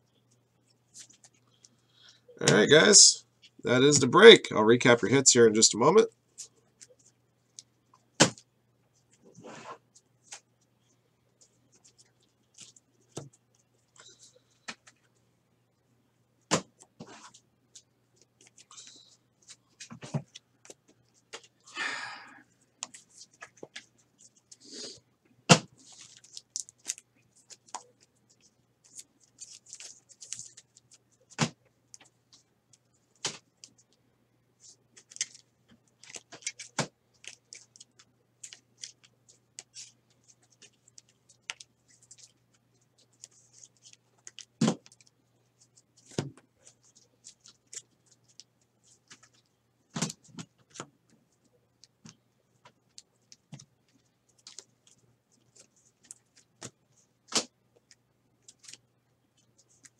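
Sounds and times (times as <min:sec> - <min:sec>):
cards sliding and rustling: 0:16.5 - 0:20.4.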